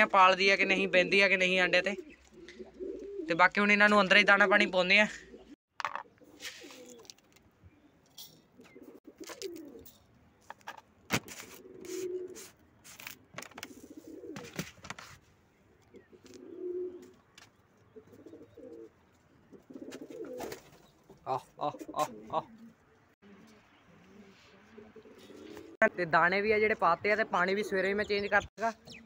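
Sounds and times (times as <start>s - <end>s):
pigeons cooing: 1.8s - 3.3s, 5.1s - 10.0s, 11.4s - 12.6s, 13.5s - 14.7s, 15.6s - 25.8s.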